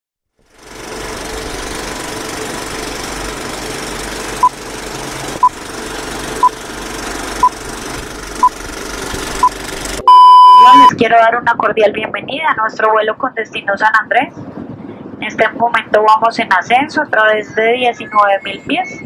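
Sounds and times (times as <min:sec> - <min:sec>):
film projector rattle: 0:00.4 - 0:10.0
short high beeps: 0:09.4 - 0:10.9.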